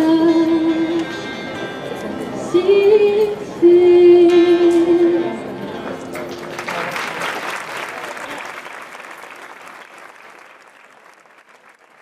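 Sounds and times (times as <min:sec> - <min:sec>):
crowd applauding: 0:06.2 - 0:12.0.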